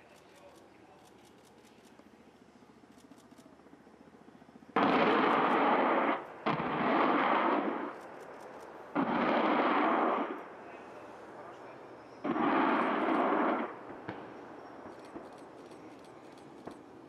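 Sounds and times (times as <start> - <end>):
rocket salvo rushing blasts: 12.2 - 13.8.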